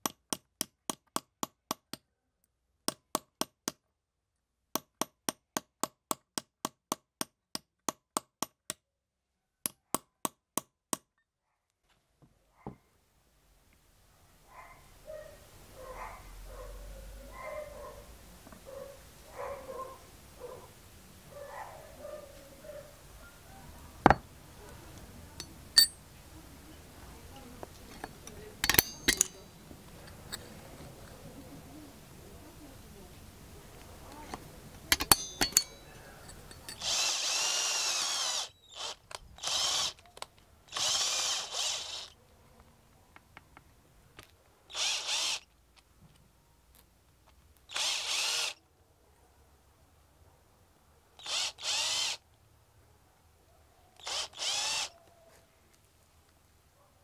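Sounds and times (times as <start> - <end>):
hammer tapping metal punch: 25.4 - 26.0, 28.6 - 29.4, 34.9 - 36.8
metal parts clinking on steel: 25.8 - 26.0, 27.9 - 30.5, 34.9 - 36.9.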